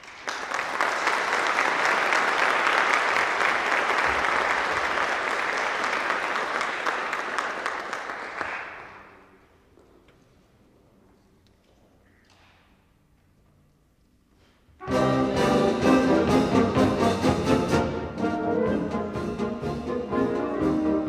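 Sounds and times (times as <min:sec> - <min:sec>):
audience applause: 0:00.0 - 0:09.3.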